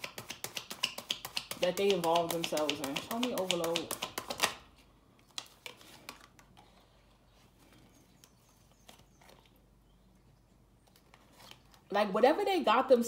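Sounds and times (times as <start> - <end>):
cards tapping on a shelf: 0.0 - 4.6.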